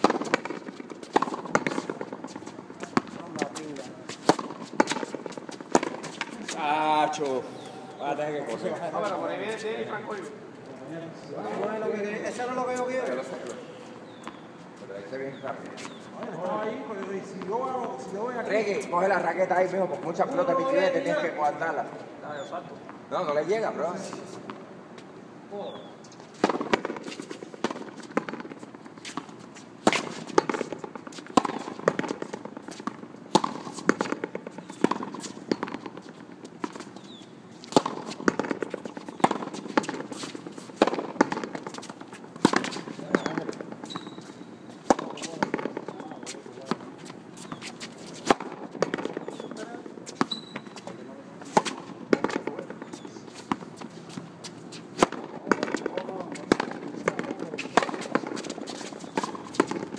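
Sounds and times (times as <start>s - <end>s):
ball smacking rackets and wall: 0.0s - 7.4s, 26.3s - 59.9s.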